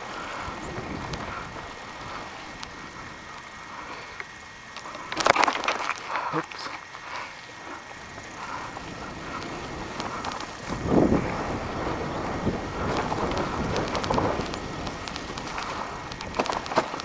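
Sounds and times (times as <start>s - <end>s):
wind buffeting microphone: 0.0s - 3.3s, 8.1s - 17.0s
small clicks and crunches: 4.1s - 7.0s, 9.3s - 10.9s, 12.8s - 17.0s.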